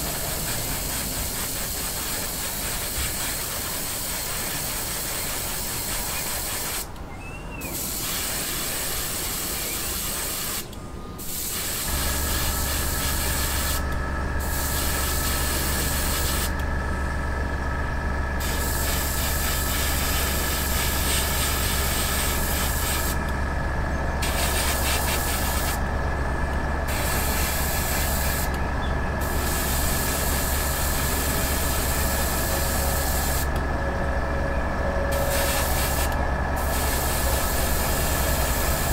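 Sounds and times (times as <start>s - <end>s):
airbrush spraying hiss: 0.0s - 6.9s, 7.8s - 10.6s, 11.2s - 13.8s, 14.4s - 16.5s, 18.4s - 23.2s, 24.2s - 25.8s, 26.9s - 28.5s, 29.2s - 33.5s, 35.1s - 38.9s
low motor hum: 11.9s - 38.9s.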